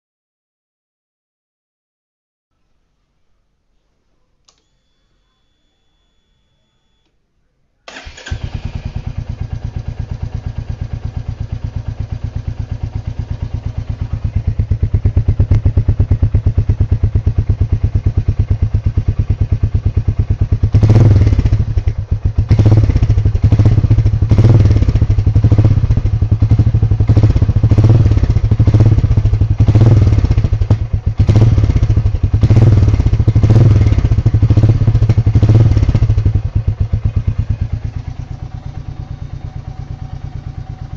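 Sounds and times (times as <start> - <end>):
throttle blips: 4.5 - 7.2
motorcycle engine idling: 7.9 - 40.9
motorcycle engine starting: 7.9 - 40.9.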